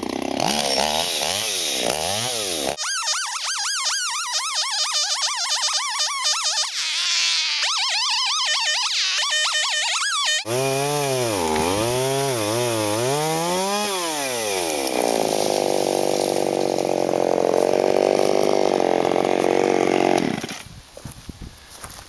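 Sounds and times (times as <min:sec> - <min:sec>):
chainsaw revving and cutting: 0:00.0 - 0:02.8, 0:10.4 - 0:20.6.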